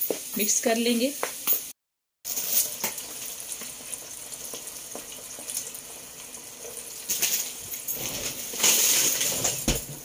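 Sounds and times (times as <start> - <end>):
pot simmering hiss and sizzle: 2.3 - 10.0.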